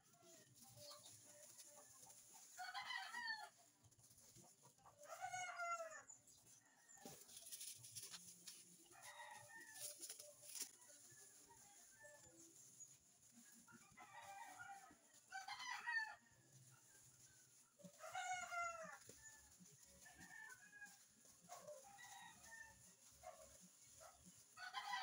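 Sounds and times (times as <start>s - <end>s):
faint rooster crowing: 2.6s - 3.6s, 4.9s - 7.8s, 8.8s - 12.6s, 13.6s - 16.8s, 17.8s - 25.0s.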